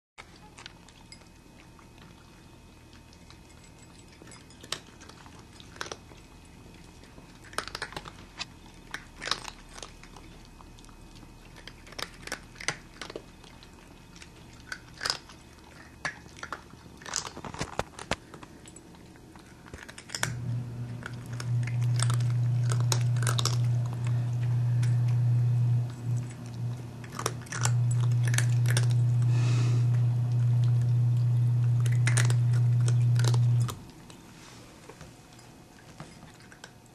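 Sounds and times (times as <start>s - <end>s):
cats crunching food: 0.2s - 36.9s
loud low hum: 20.3s - 33.8s.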